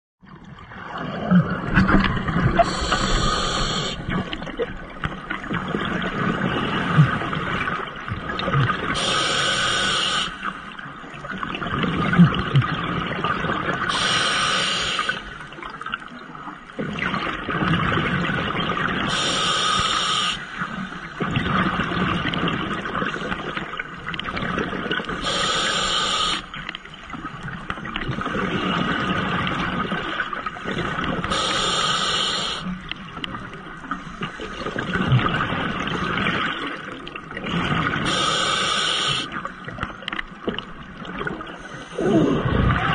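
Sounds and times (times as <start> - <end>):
exhaled bubbles gurgling: 0.2 - 42.9
regulator hissing inhale: 2.6 - 4.2, 9.0 - 10.8, 13.9 - 15.3, 19.1 - 21.0, 25.2 - 26.6, 31.2 - 32.7, 38.0 - 39.4.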